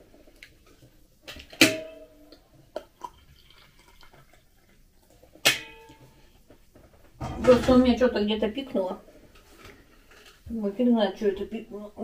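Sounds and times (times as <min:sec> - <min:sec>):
water pouring into a mug: 0:02.8 - 0:05.1.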